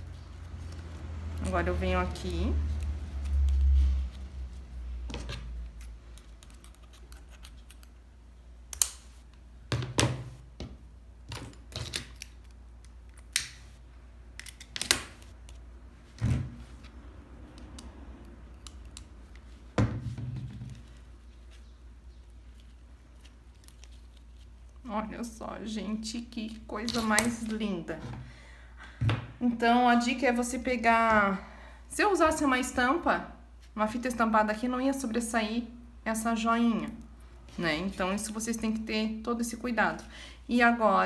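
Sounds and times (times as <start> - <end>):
ribbon rustling: 0.0 - 8.1, 18.2 - 25.4.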